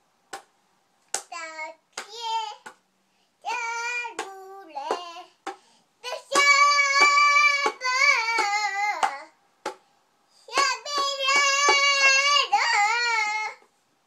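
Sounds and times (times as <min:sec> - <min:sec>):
toddler singing: 0:01.2 - 0:02.8, 0:03.4 - 0:05.4, 0:06.0 - 0:09.4, 0:10.5 - 0:13.7.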